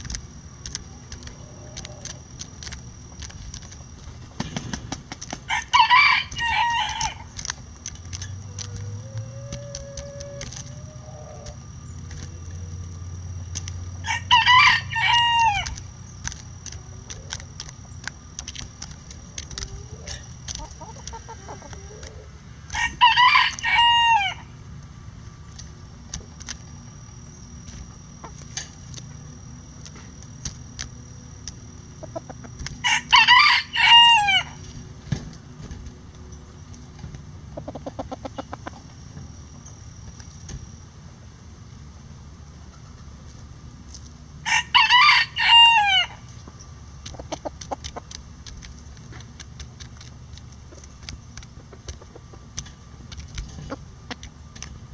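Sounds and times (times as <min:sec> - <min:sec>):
roosters crowing: 0:00.0 - 0:02.5, 0:04.4 - 0:07.6, 0:08.2 - 0:16.2, 0:19.1 - 0:24.7, 0:31.8 - 0:35.3, 0:44.4 - 0:48.0.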